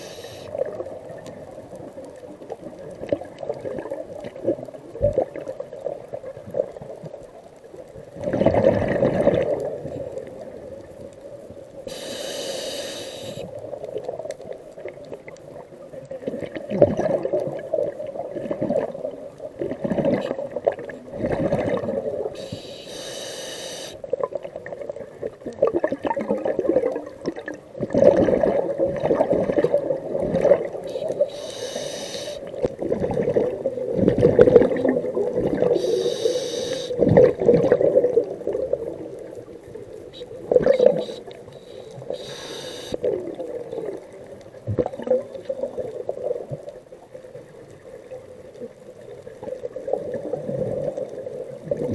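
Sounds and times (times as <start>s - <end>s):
hissing regulator breaths: 0.0s - 0.5s, 11.9s - 13.5s, 22.4s - 24.0s, 30.9s - 32.5s, 35.8s - 37.0s, 40.8s - 43.0s
bubbles gurgling underwater: 0.5s - 11.1s, 13.5s - 22.4s, 24.0s - 31.4s, 32.4s - 42.2s, 42.9s - 51.9s.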